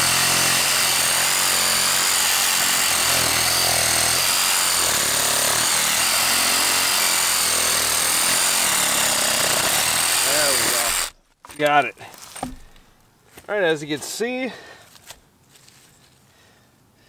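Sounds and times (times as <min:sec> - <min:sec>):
reciprocating saw cutting log: 0:00.0 - 0:11.2.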